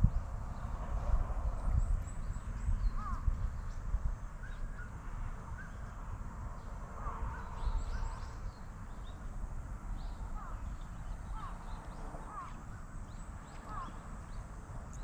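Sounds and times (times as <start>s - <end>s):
birds chirping: 10.0s - 15.0s.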